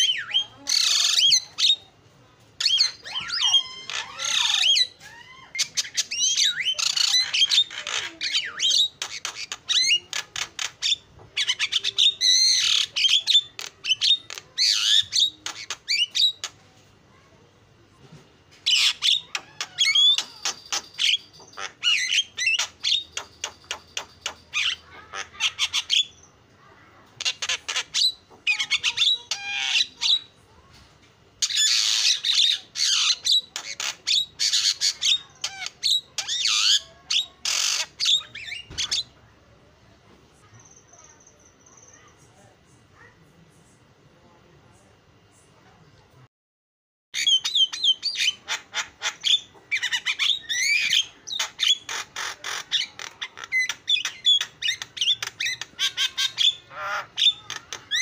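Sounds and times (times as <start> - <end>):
bird singing with chattering clicks: 5.6 - 16.6, 18.7 - 24.8, 47.2 - 56.6.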